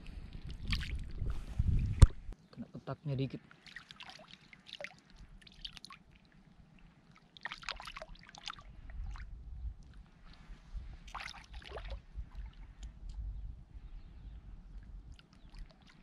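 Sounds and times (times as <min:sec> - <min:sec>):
seawater splashing and dripping: 0:00.0 - 0:01.3, 0:03.3 - 0:13.2, 0:14.7 - 0:16.0.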